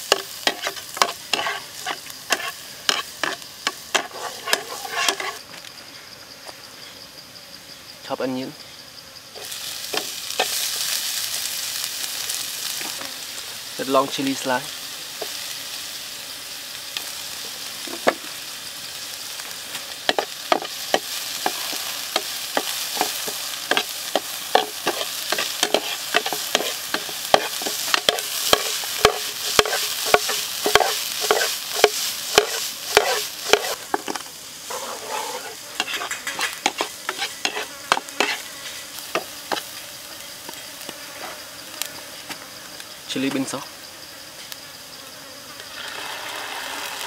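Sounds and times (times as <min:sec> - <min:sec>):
vegetables sizzling in hot oil: 0:00.0 - 0:05.4, 0:09.3 - 0:41.9, 0:45.6 - 0:47.0
metal ladle scraping and knocking pan: 0:00.1 - 0:05.4, 0:20.1 - 0:38.4.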